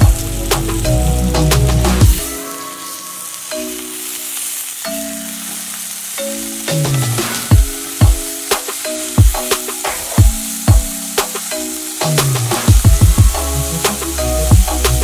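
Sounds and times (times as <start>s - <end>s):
heavy drum beat: 0.0s - 2.3s, 6.9s - 15.0s
background music: 0.0s - 15.0s
sausages sizzling in oil: 0.0s - 15.0s.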